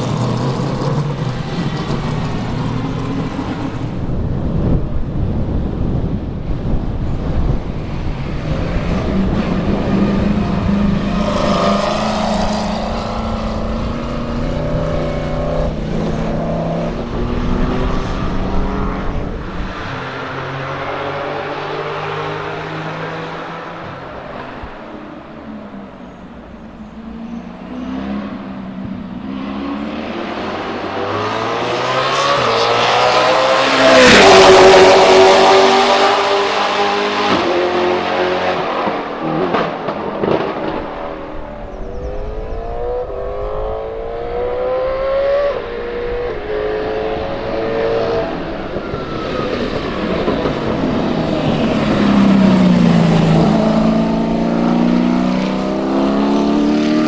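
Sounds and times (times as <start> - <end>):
race car engine at full throttle: 0.0 - 57.0.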